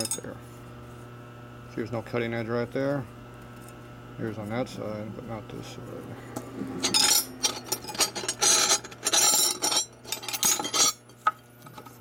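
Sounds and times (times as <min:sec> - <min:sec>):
metal files scraping and clinking: 0:06.6 - 0:12.0.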